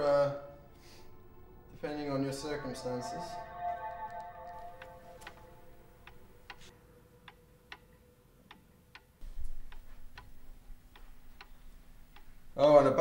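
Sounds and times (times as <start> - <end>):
faint steady hum: 0.0 - 13.0
clock ticking: 7.3 - 13.0.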